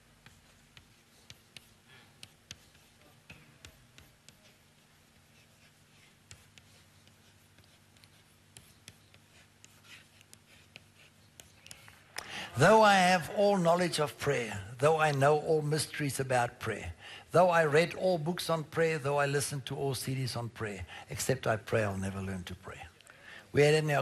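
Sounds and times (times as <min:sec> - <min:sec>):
chalk on blackboard: 0:00.2 - 0:14.4.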